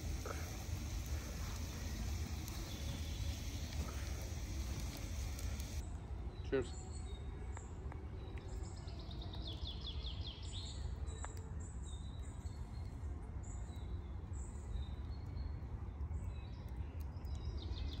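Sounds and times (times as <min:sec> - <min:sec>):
low rumble: 0:00.0 - 0:05.8
small birds chirping: 0:00.0 - 0:05.8.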